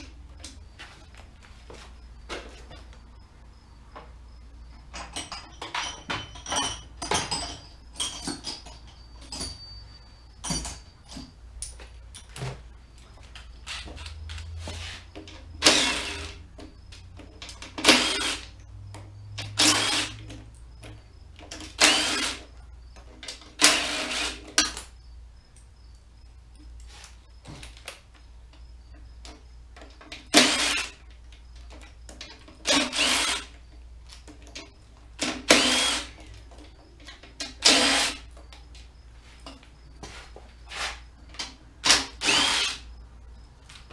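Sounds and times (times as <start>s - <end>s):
small metallic clicks and clinks: 4.9s - 14.5s
cordless drill running: 15.6s - 16.4s, 17.8s - 18.4s, 19.6s - 20.2s, 21.8s - 22.4s, 23.6s - 24.4s, 30.3s - 31.0s, 32.6s - 33.5s, 35.5s - 36.2s, 37.6s - 38.2s, 41.8s - 42.9s.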